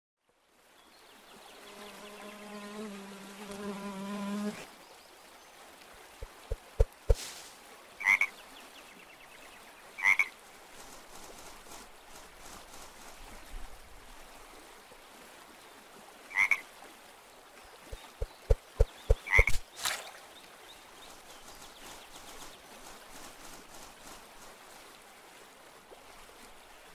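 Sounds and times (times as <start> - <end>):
faint forest background: 0.2 - 26.9
cartoon frog croaking: 19.2 - 19.6.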